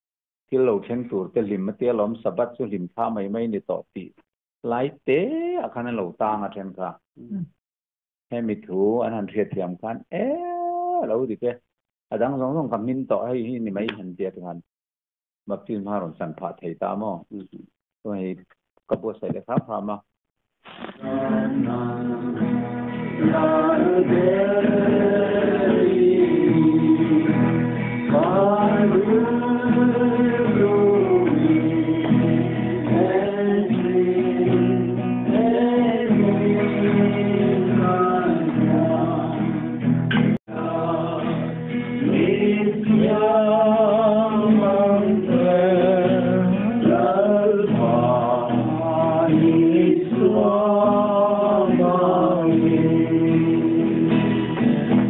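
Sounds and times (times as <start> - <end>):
strummed acoustic guitar: 20.7 - 55.0
men singing: 20.9 - 39.8, 40.5 - 54.7.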